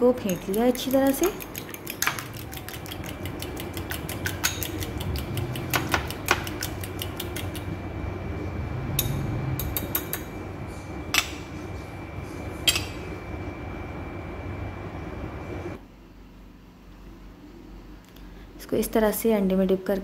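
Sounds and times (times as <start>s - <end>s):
fork beating eggs in a bowl: 0.0s - 7.8s
low background hum: 0.0s - 20.0s
fork clinking on bowl: 0.2s - 7.6s.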